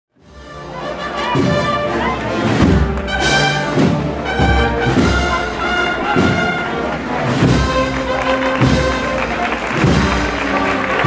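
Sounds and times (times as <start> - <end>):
brass band playing a march: 0.2 - 11.0
low drum beat: 2.5 - 10.6.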